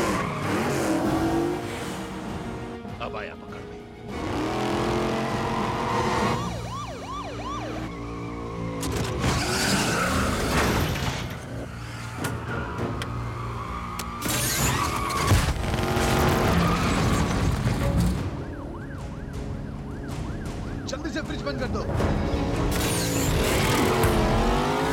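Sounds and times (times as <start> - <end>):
cars revving: 0.0 - 2.7, 4.0 - 6.6, 21.8 - 24.9
police siren wailing: 5.4 - 8.9, 18.2 - 21.0.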